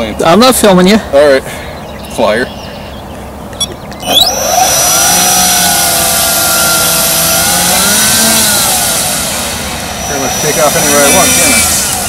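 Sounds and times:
electric motor whine: 4.0s - 12.0s
propeller wash hiss: 6.1s - 12.0s.

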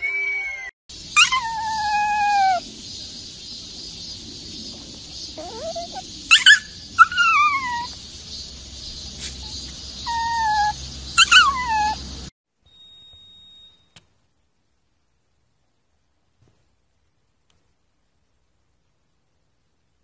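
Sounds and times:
dog whining: 1.2s - 2.6s, 5.4s - 8.0s, 9.4s - 12.0s.

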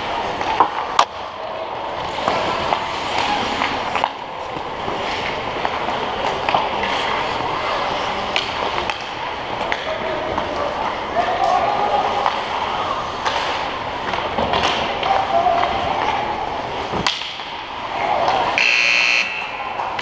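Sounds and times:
hockey sticks and puck clacking: 0.0s - 20.0s
skate blades scraping on ice: 1.9s - 8.9s.

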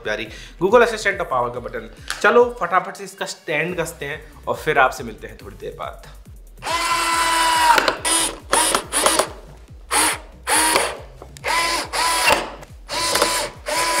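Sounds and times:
cordless drill motor whining: 6.6s - 14.0s.

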